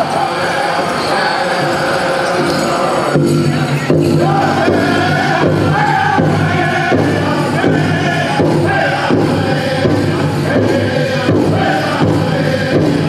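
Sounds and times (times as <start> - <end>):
group singing in high voices: 0.0 - 13.0
steady beat on big drum: 3.1 - 13.0.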